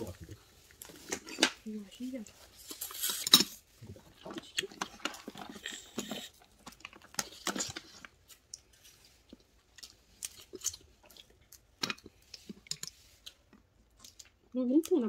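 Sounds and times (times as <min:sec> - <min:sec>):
chewing: 0:02.6 - 0:15.0.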